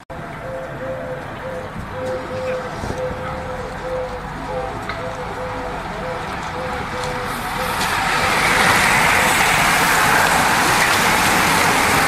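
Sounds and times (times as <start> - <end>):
bicycle tyres hissing on road: 7.3 - 12.0.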